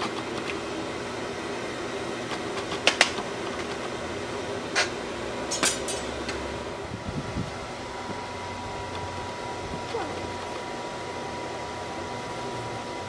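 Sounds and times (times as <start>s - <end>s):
steel tools clinking on bucket: 5.5s - 6.2s.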